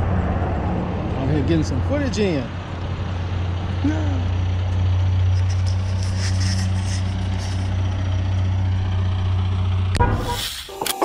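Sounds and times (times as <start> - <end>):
engine idling: 2.0 - 10.0.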